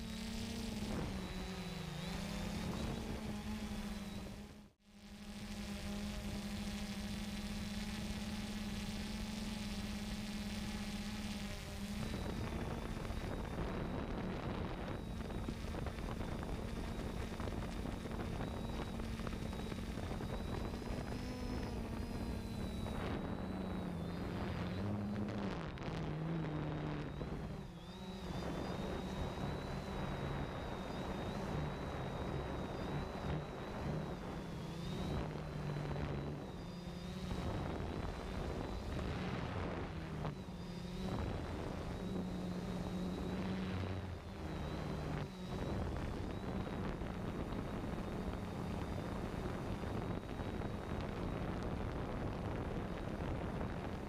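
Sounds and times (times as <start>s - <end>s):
drone motors and propellers humming: 0.0s - 54.0s
wind noise: 11.6s - 54.0s.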